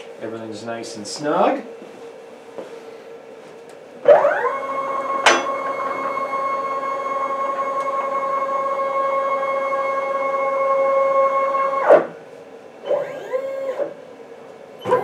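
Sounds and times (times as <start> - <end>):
stepper motors whining: 4.0 - 12.1, 12.8 - 14.0, 14.8 - 15.0.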